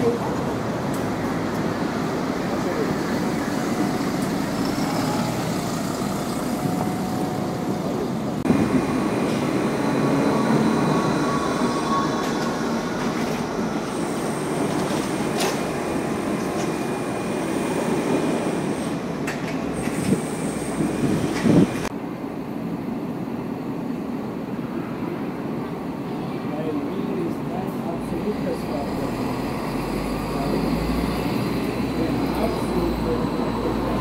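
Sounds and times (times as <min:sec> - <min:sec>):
tyre and road noise: 0:00.0 - 0:22.0.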